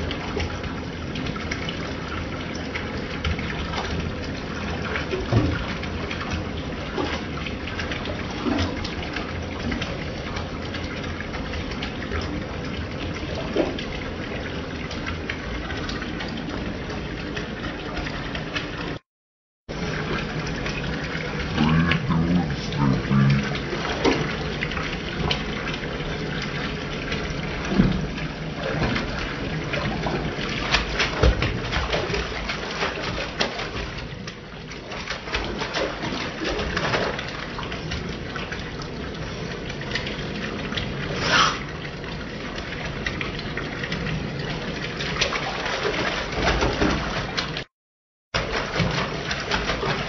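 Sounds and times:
faucet running into tub: 0:19.7 - 0:47.6
cat splashing in water: 0:28.0 - 0:34.0, 0:48.4 - 0:50.0.

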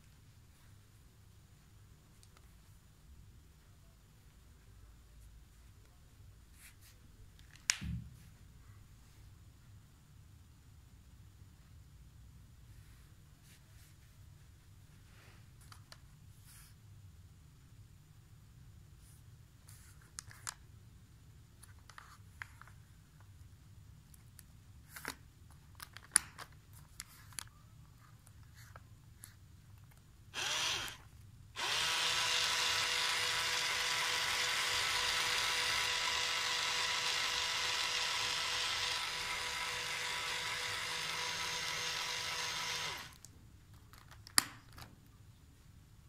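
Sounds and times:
small electric motor whirring: 0:30.4 - 0:43.2.

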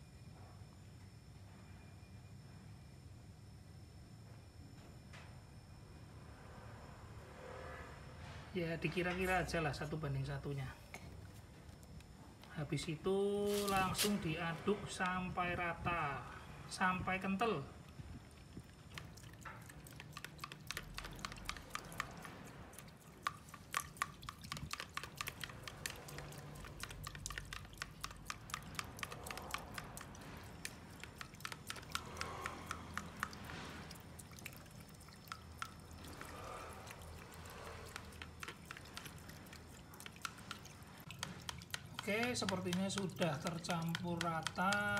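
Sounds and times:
toothbrush stirring wet clicks: 0:18.3 - 0:44.9.

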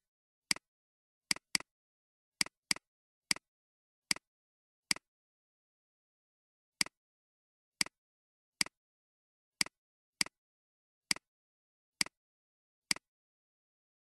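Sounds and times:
computer mouse clicks: 0:01.3 - 0:01.7.

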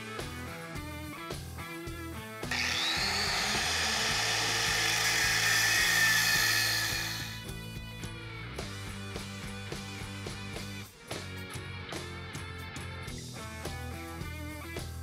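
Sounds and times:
angle grinder cutting metal: 0:02.5 - 0:07.5.

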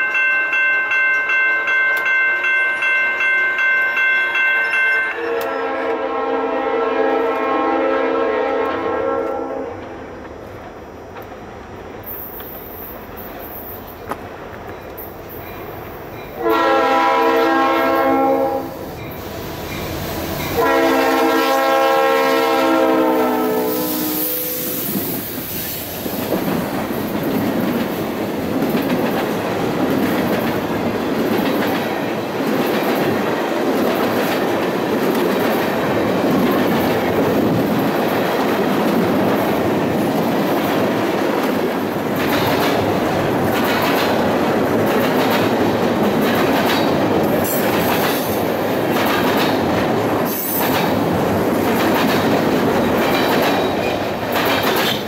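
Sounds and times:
locomotive horn blasts: 0:05.0 - 0:09.8, 0:16.4 - 0:18.9, 0:20.6 - 0:24.9
train wheels clattering on rails: 0:24.8 - 0:55.0.

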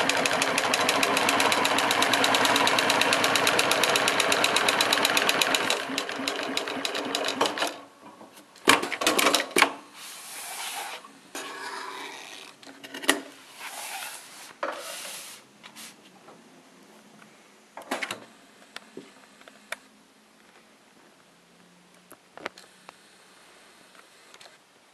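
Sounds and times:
sewing machine stitching: 0:00.0 - 0:07.8.

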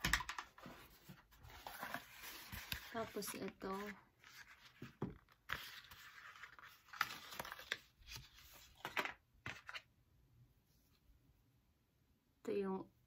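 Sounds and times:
paper and cardboard rustling: 0:00.1 - 0:09.9.

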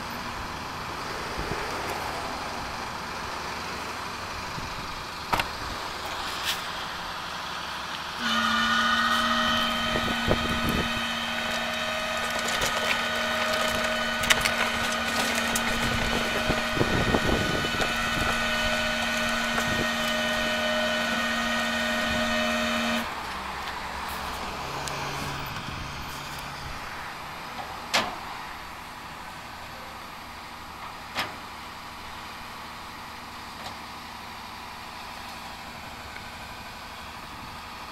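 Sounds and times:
winch whining: 0:08.2 - 0:23.2.

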